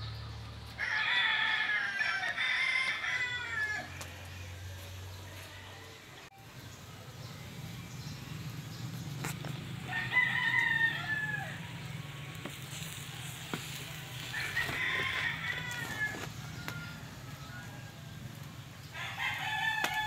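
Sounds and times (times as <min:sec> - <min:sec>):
rooster crowing: 0:00.8 - 0:04.1, 0:09.8 - 0:11.9, 0:14.1 - 0:20.0.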